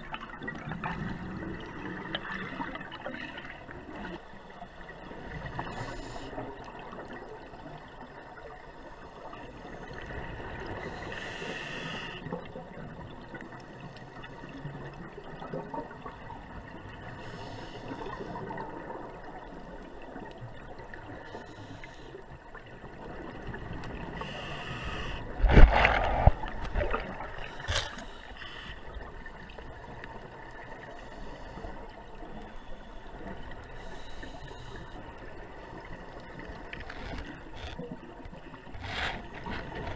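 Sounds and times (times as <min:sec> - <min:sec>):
murky water rumble: 0:00.0 - 0:39.9
scuba regulator breathing: 0:10.8 - 0:12.2, 0:24.2 - 0:26.0, 0:27.4 - 0:29.0, 0:32.5 - 0:35.1.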